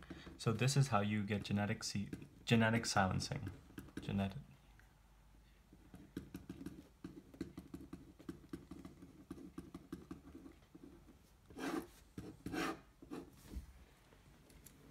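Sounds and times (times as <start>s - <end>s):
marker pen writing on paper: 3.4s - 4.3s, 5.7s - 13.4s.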